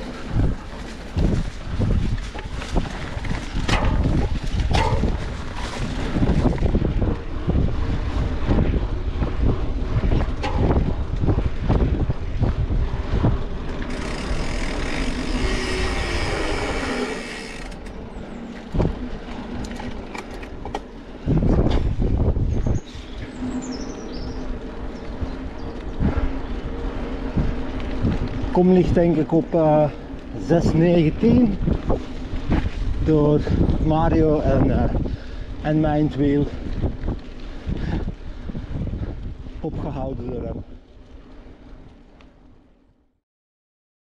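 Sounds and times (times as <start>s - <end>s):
bike knocks and rattles: 0.0s - 23.8s
bike tyre rumble: 0.0s - 43.2s.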